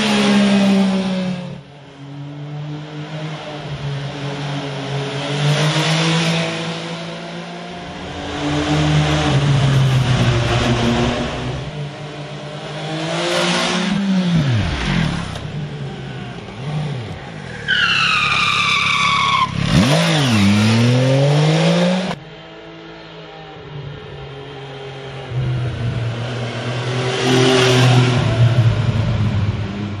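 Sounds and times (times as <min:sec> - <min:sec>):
motorcycle engine revving and passing: 0:00.0 - 0:17.6, 0:18.4 - 0:22.3, 0:24.5 - 0:30.0.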